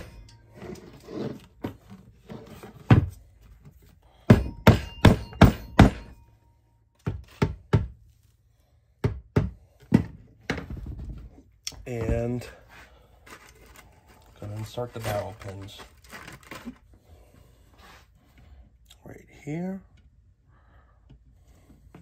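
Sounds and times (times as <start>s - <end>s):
soft handling noise: 11.8s - 17.0s.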